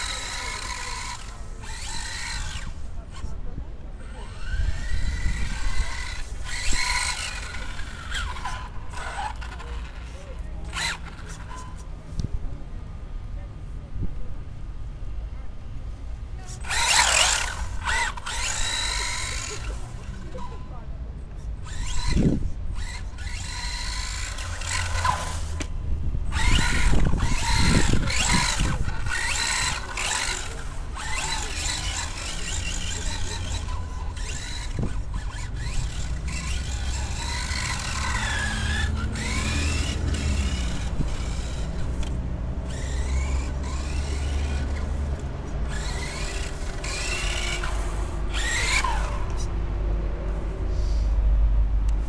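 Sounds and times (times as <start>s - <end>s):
electric motor whining: 0.0s - 3.3s, 4.0s - 11.8s, 16.6s - 20.6s, 21.6s - 49.5s.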